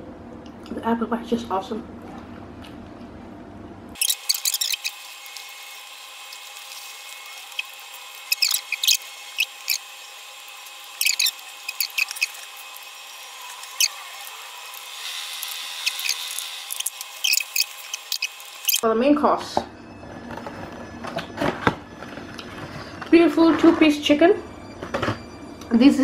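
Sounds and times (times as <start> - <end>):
food packaging crinkling: 4.0 - 18.8.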